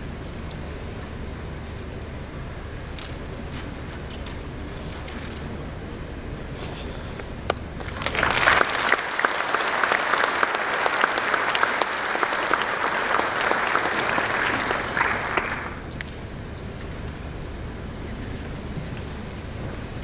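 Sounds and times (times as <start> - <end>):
audience applauding: 7.5 - 16.2.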